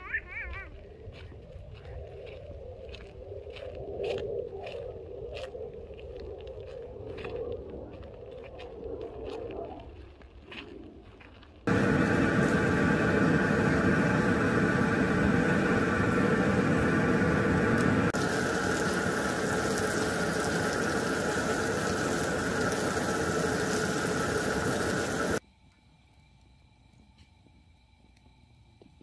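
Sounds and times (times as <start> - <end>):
meat sizzling on griddle pan: 18.1 - 25.4.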